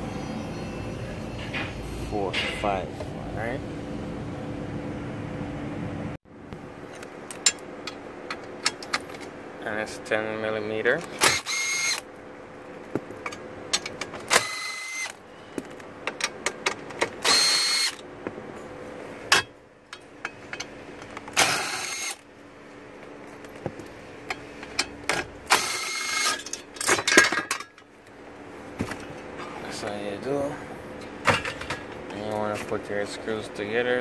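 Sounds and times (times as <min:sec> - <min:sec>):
clicks and rattles of tool and bolts: 0:06.9 - 0:09.4, 0:12.9 - 0:17.3, 0:19.3 - 0:22.2, 0:23.0 - 0:27.9, 0:31.0 - 0:32.8
cordless drill running: 0:11.2 - 0:12.0, 0:14.3 - 0:15.1, 0:17.2 - 0:18.0, 0:21.4 - 0:22.2, 0:25.5 - 0:26.3.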